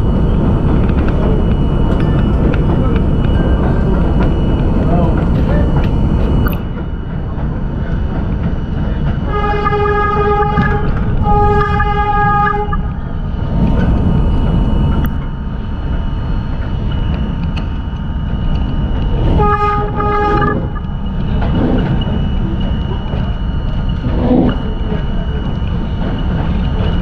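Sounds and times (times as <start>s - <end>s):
trains rumbling on elevated track: 0.0s - 27.0s
train horn blasts: 9.2s - 14.1s, 19.1s - 22.0s.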